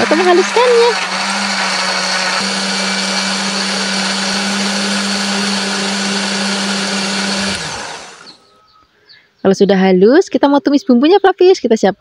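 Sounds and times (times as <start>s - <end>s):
blender motor hum: 0.0s - 8.5s.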